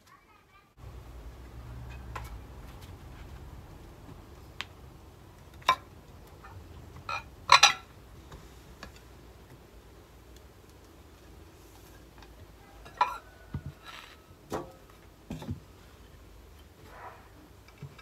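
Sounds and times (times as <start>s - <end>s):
dishes and cutlery clattering: 6.4s - 7.9s, 12.8s - 13.3s.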